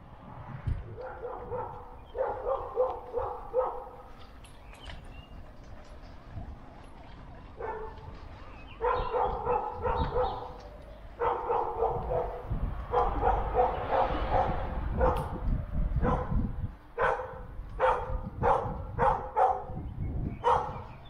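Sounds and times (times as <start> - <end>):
bicycle rumbling over cobblestones: 0.0 - 21.0.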